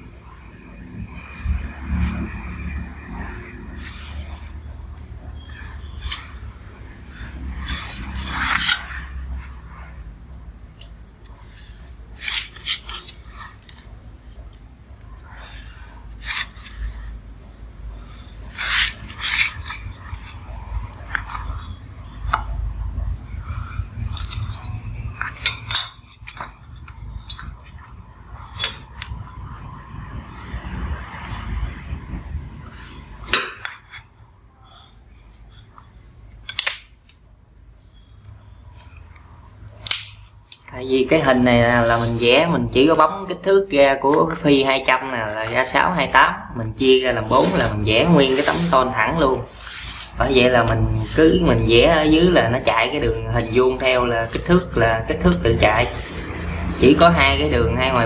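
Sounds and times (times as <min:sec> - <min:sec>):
pen scratching on paper: 0:01.1 - 0:09.9, 0:11.2 - 0:13.9, 0:15.1 - 0:17.2, 0:18.0 - 0:22.2, 0:41.0 - 0:43.5, 0:46.8 - 0:58.0
steel ruler scraping and clinking: 0:03.2 - 0:04.7, 0:05.4 - 0:06.5, 0:07.2 - 0:09.6, 0:10.8 - 0:13.9, 0:18.2 - 0:22.2, 0:24.0 - 0:27.9, 0:28.5 - 0:29.0, 0:46.8 - 0:58.0.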